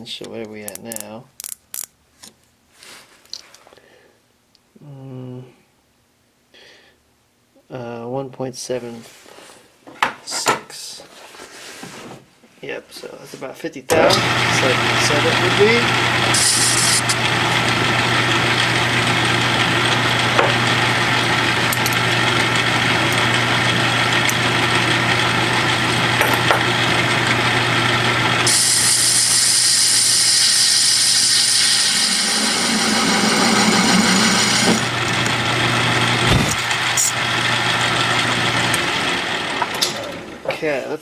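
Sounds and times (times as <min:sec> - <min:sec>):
loud hissing cutting noise: 0:13.9 - 0:38.9
lathe motor hum: 0:13.9 - 0:40.5.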